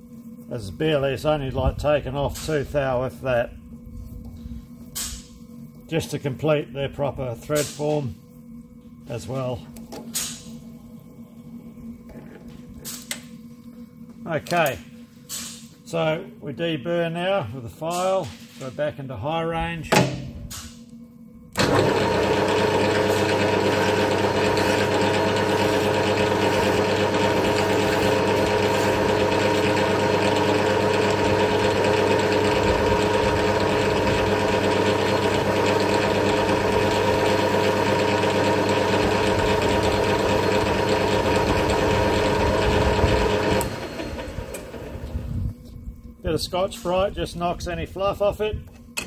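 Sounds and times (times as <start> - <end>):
metal lathe gear whine: 20.9 - 49.0.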